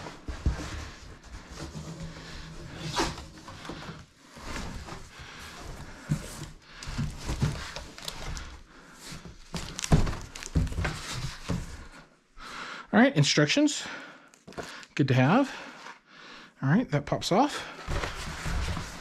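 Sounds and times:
cardboard rustling and scraping: 0:00.0 - 0:12.0, 0:17.8 - 0:19.0.

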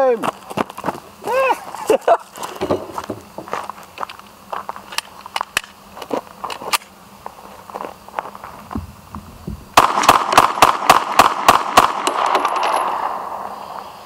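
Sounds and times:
pistol shots in rapid string: 0:09.8 - 0:13.4.

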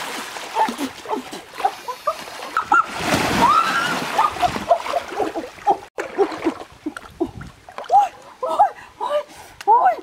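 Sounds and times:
water splashing in a stream: 0:00.0 - 0:09.0.

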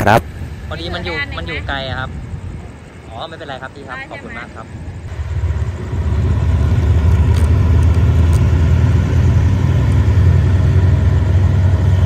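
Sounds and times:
diesel locomotive rumbling: 0:00.0 - 0:12.0.

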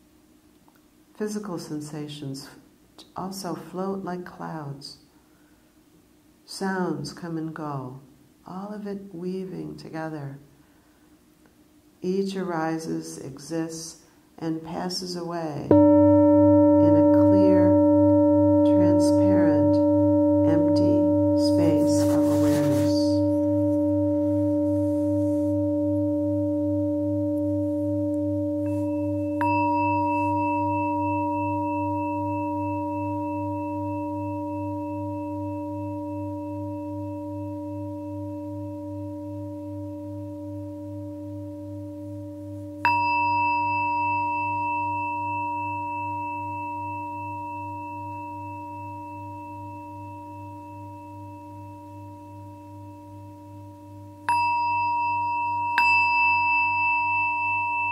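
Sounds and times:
high singing bowl struck: 0:15.7 - 0:57.9
low pulsing singing bowl tone: 0:15.7 - 0:57.9.

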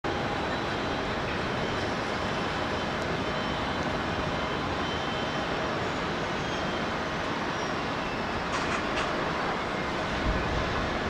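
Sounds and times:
faint high whine: 0:00.1 - 0:08.6
jet engines idling: 0:00.1 - 0:11.0.

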